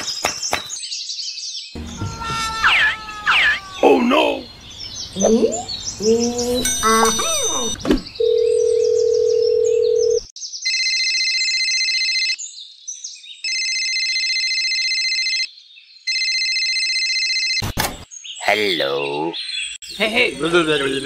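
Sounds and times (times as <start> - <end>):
electronic telephone ring trills: 6.7 - 12.4, 13.5 - 15.5, 16.1 - 17.6
telephone dial tone: 7.1 - 10.2.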